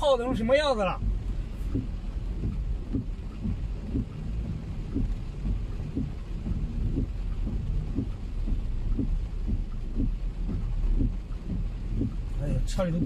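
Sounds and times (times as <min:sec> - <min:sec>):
heavy rain on car: 0:00.0 - 0:13.0.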